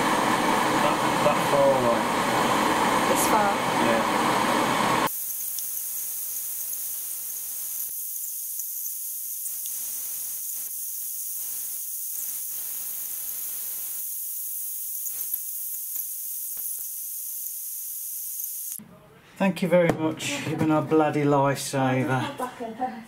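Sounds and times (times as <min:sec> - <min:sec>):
blowtorches hissing: 0:00.0 - 0:18.8.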